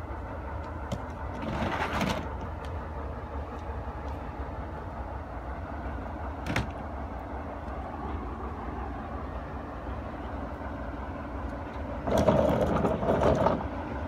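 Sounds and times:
diesel locomotive engine rumbling: 0:00.0 - 0:14.0
rustling clatter: 0:00.9 - 0:02.7, 0:12.0 - 0:13.8.

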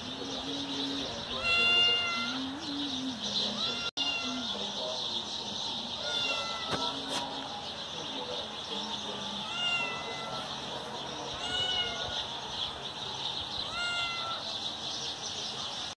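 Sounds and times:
cat meowing: 0:01.3 - 0:02.4, 0:03.5 - 0:04.5, 0:06.0 - 0:07.0, 0:09.4 - 0:10.5, 0:11.4 - 0:12.2, 0:13.6 - 0:14.5.

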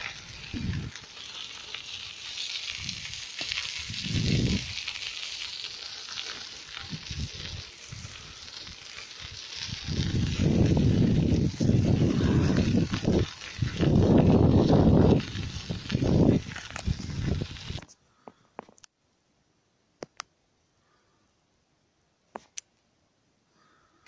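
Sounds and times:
wind buffeting microphone: 0:00.0 - 0:01.0, 0:03.8 - 0:04.8, 0:06.8 - 0:17.8
bicycle tyres rolling on asphalt: 0:00.0 - 0:18.4.

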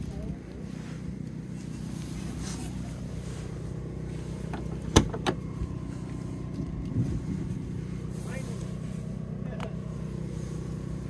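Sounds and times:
vehicle engine idling: 0:00.0 - 0:11.0
car door latch clicking: 0:04.9 - 0:05.4.

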